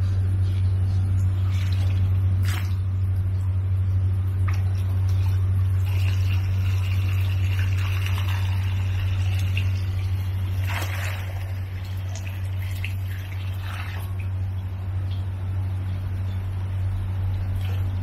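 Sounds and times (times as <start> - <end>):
steady low hum: 0.0 - 18.0
water trickling and splashing: 4.4 - 15.3.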